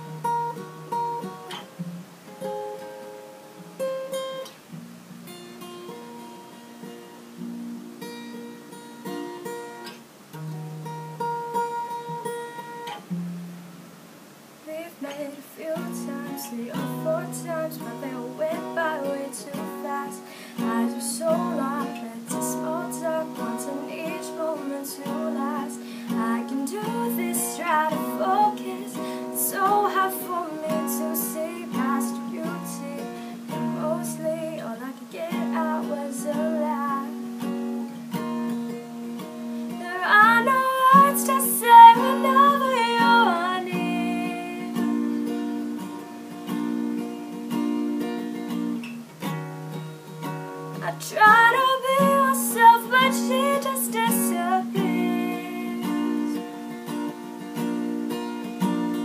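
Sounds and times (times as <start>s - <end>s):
acoustic guitar picking: 0.0s - 59.0s
woman singing: 14.6s - 37.4s, 39.7s - 45.5s, 50.8s - 56.7s.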